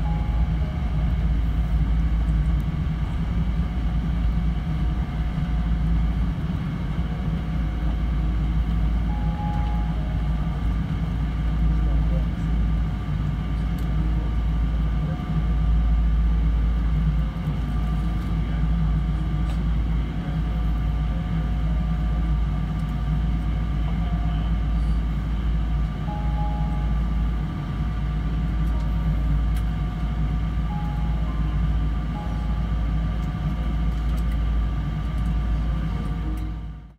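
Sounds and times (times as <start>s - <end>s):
aircraft cabin low rumble: 0.0s - 36.9s
idling jet engine whine: 0.0s - 36.9s.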